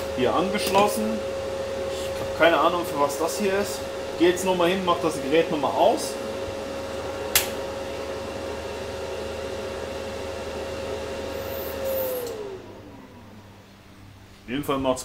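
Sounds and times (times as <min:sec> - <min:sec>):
cooling fan whine: 0:00.0 - 0:15.0
sharp click: 0:07.3 - 0:07.6.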